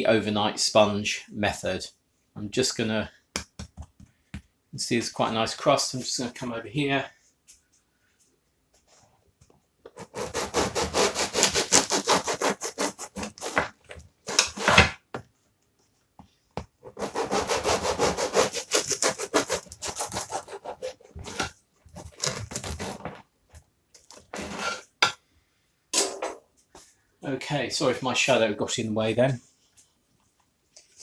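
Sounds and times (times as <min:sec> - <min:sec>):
bread knife sawing crusty loaf: 0:10.0 - 0:13.7, 0:16.9 - 0:21.5.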